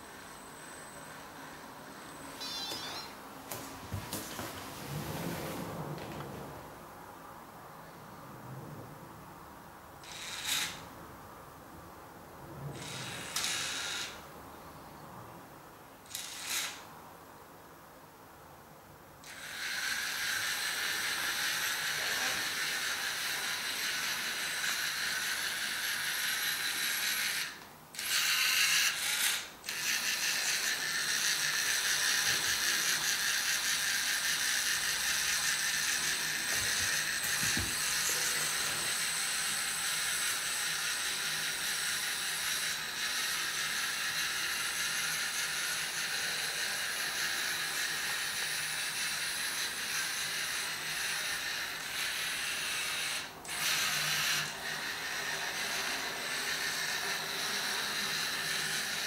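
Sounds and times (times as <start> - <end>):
robot motors whirring: 19.3 - 59.0.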